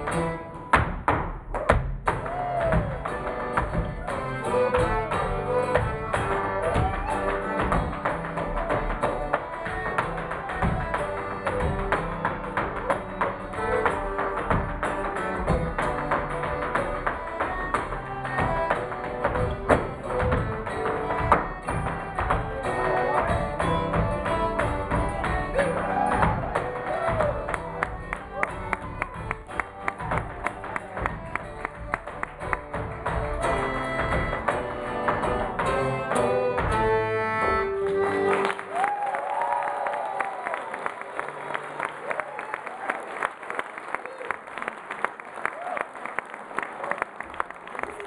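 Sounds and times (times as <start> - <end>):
live folk band music: 0.0 - 39.1
tap shoes striking stage: 0.0 - 40.2
audience cheering and applauding: 1.6 - 20.8, 21.6 - 33.9, 37.8 - 48.0
flute: 2.1 - 31.3, 33.1 - 40.6
fiddle and concertina playing: 2.3 - 38.8.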